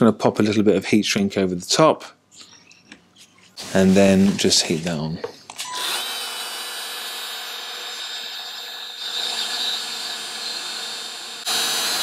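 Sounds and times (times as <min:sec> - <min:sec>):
heat gun blowing: 0:05.6 - 0:12.0.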